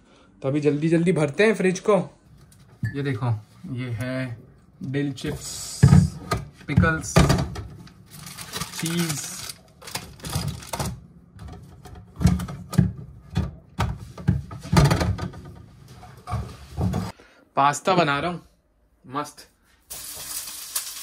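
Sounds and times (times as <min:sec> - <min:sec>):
jars and packages clattering: 0:06.9 - 0:13.5
packaging rustling: 0:08.0 - 0:11.0.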